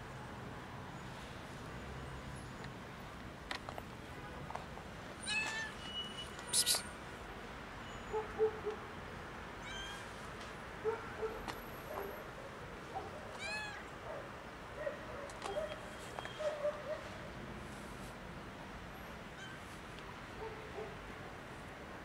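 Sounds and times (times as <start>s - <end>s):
kitten meowing: 6.5s - 6.9s, 9.6s - 10.0s, 13.4s - 13.9s.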